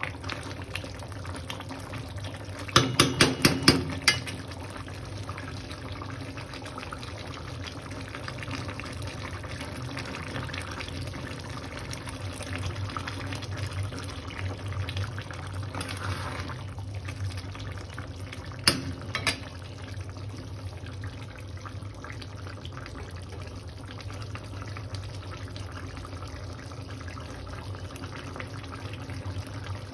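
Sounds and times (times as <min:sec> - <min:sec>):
curry bubbling in a pan: 0:00.0 - 0:29.9
spatula knocking on pan: 0:02.8 - 0:04.4.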